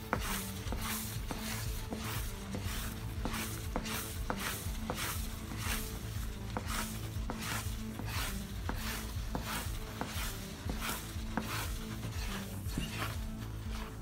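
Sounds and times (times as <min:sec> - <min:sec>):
background music: 0:00.0 - 0:14.0
wooden spoon stirring thick paste: 0:00.0 - 0:14.0.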